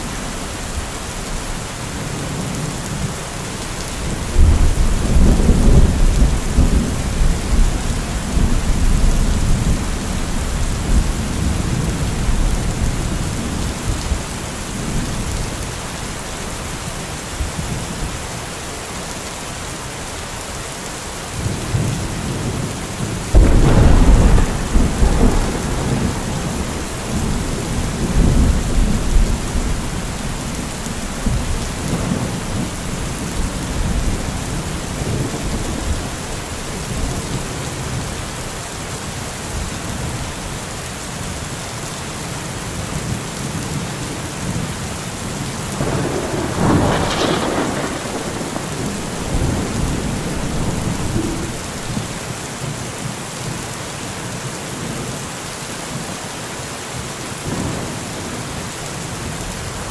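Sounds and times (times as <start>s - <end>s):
heavy rain falling: 0.0s - 59.9s
low rolling thunder rumbles: 4.0s - 15.5s, 21.7s - 38.1s, 45.3s - 52.3s
thunder crack: 23.3s - 29.9s, 45.8s - 52.1s.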